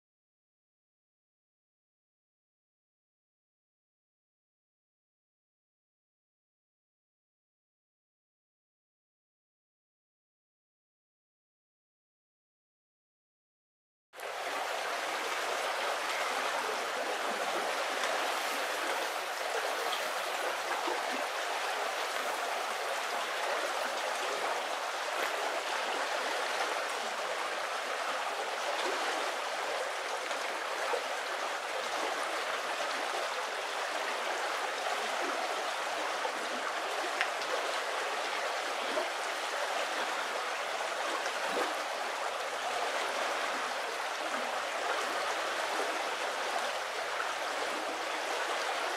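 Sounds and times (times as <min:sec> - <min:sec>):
river flowing over pebbles: 0:14.2 - 0:48.9.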